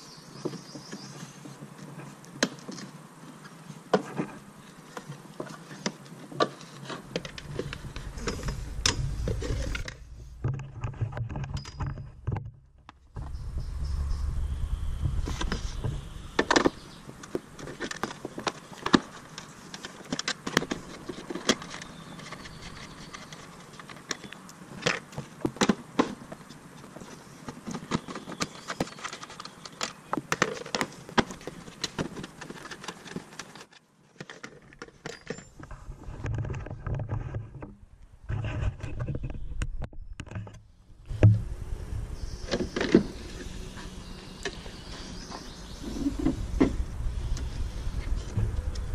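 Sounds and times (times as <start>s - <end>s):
clicks and rattles of plastic: 16.4s - 35.6s.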